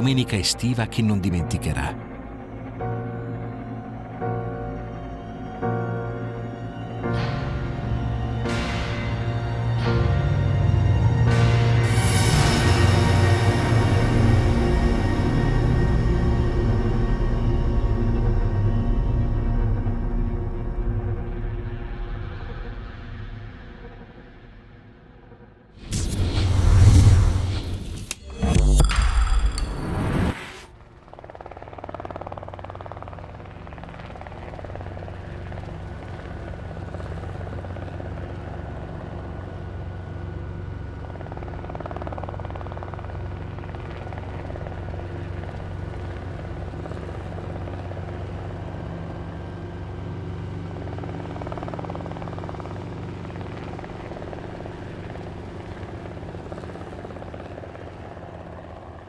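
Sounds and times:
low mechanical drone: 0:00.0 - 0:59.0
loud sound-effect sting: 0:25.8 - 0:30.7.

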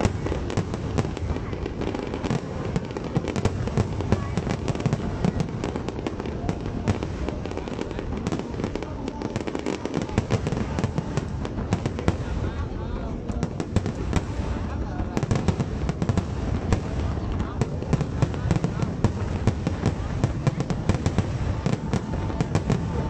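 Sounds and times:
firework bangs and crackles: 0:00.0 - 0:23.0.

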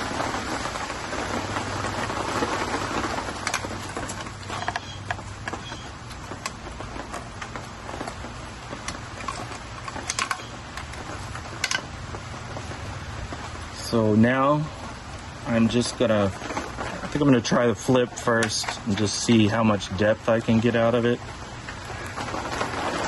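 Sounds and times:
hands rustling wiring: 0:00.0 - 0:23.0.

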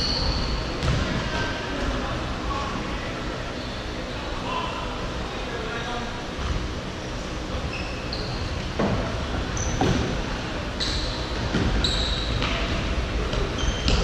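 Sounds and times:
shoes squeaking on wooden court: 0:07.7 - 0:08.6, 0:09.5 - 0:10.1, 0:10.8 - 0:12.7, 0:13.3 - 0:14.0.

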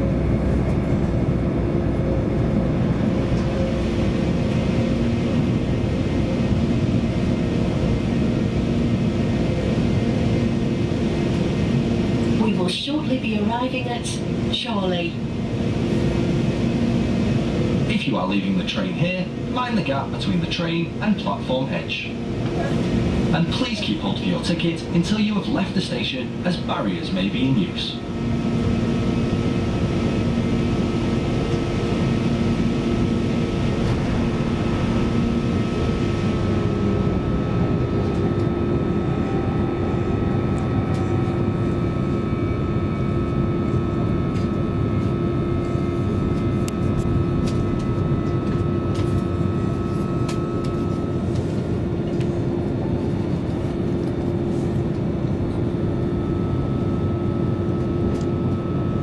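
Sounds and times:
train wheels rumbling on rails: 0:00.0 - 0:08.4, 0:09.0 - 0:42.5
steady hum: 0:00.0 - 0:59.0.

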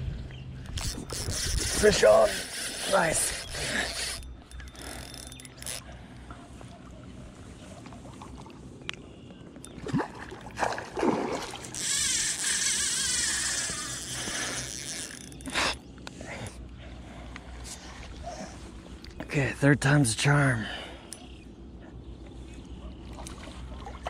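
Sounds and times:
fish splashing: 0:09.8 - 0:14.6.

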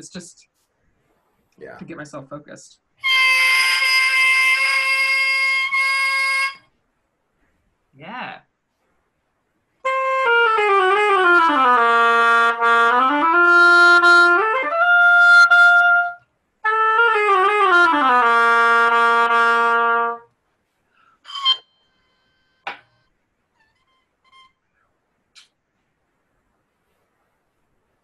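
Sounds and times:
oboe playing: 0:03.0 - 0:06.6, 0:09.9 - 0:20.2, 0:21.2 - 0:22.5, 0:23.8 - 0:24.6.

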